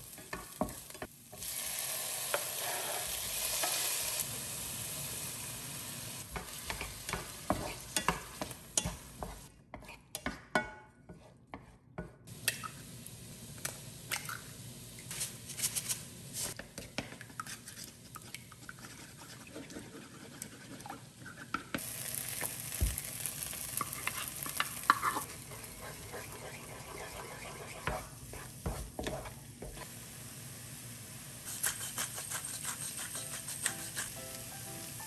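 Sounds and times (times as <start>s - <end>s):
egg sizzling in a frying pan: 0.0s - 9.5s, 21.8s - 35.0s
spoon beating eggs in a bowl: 23.8s - 29.8s, 31.5s - 34.2s.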